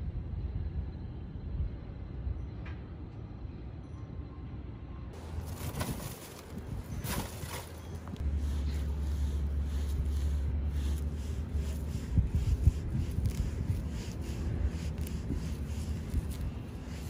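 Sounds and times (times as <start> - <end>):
low microphone rumble: 5.2 - 17.0
weeds scraping out of dry soil: 5.2 - 17.0.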